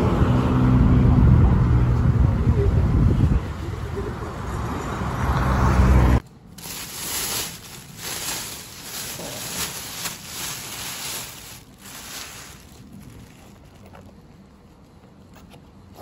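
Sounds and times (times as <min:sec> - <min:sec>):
plastic bag crinkling: 0:06.6 - 0:14.2.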